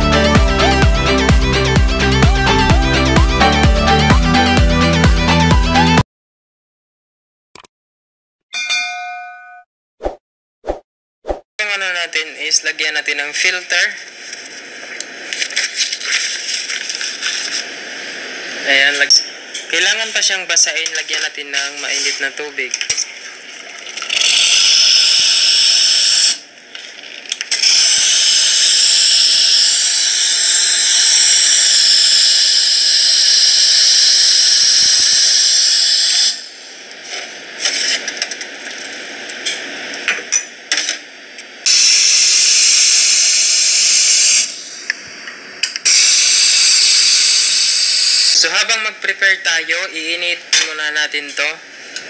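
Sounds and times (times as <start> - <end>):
hot water spout hissing: 27.7 - 36.7, 41.7 - 44.8, 45.9 - 48.5.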